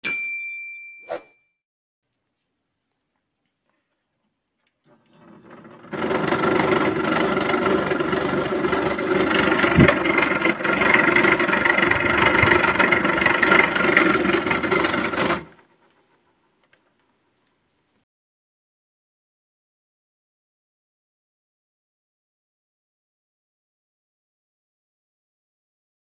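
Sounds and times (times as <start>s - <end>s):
air conditioner fan motor rough: 4.9s - 15.6s.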